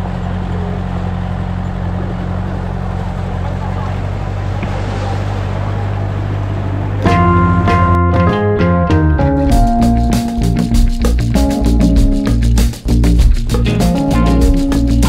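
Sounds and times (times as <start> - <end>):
off-road vehicle engine running: 0.0 - 15.0
rumbling road noise: 0.0 - 15.0.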